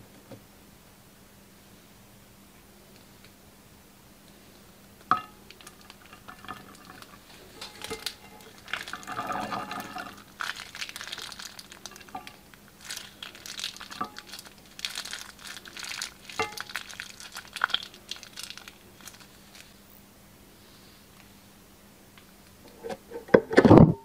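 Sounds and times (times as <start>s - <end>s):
plastic bag crinkling: 5.1s - 19.8s
wet slime squelching: 5.5s - 19.7s.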